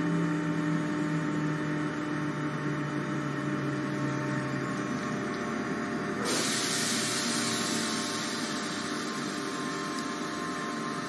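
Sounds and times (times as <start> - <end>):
electric train humming: 2.6 - 11.0
steady hiss: 6.3 - 10.4.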